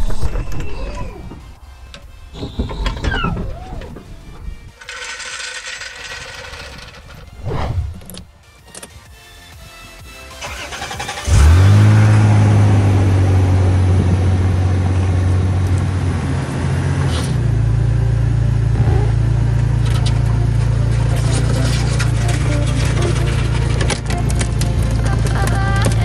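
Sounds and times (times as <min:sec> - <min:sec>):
starter motor cranking: 0:02.3 - 0:08.3, 0:10.3 - 0:11.8
car engine revving and idling: 0:10.3 - 0:26.0.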